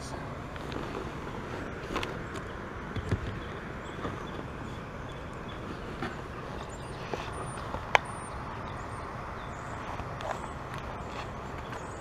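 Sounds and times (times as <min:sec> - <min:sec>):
steady outdoor hiss: 0:00.0 - 0:12.0
knocks and rustles in kayak: 0:00.5 - 0:08.8.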